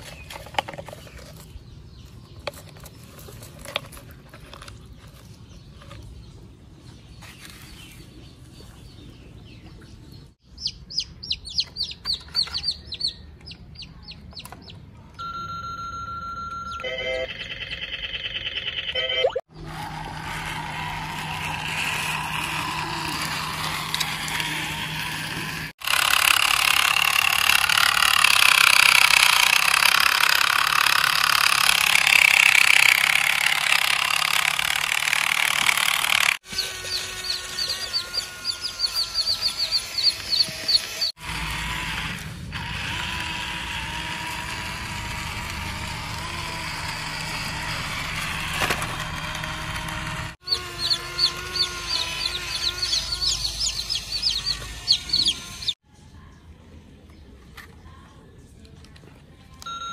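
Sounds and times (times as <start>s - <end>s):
chicks peeping: 4.8s - 14.8s, 36.5s - 41.2s, 50.4s - 55.8s.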